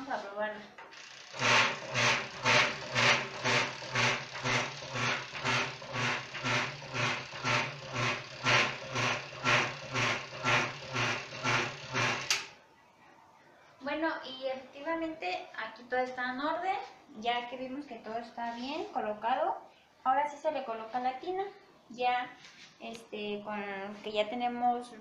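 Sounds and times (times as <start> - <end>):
washing machine motor humming: 0.8 - 12.5.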